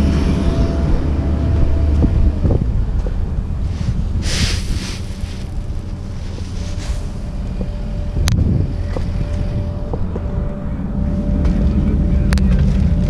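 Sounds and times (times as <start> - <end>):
diesel engine idling: 0.0 - 13.0
wind buffeting microphone: 0.0 - 13.0
brief rush of noise: 3.7 - 5.6.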